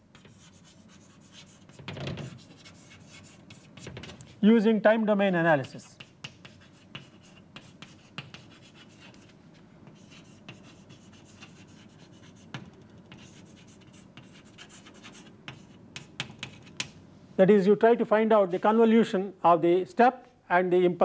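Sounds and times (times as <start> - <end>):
chalk scratching on blackboard: 0.1 - 4.1, 5.8 - 17.0
chalk tapping on blackboard: 0.1 - 4.2, 5.6 - 17.0.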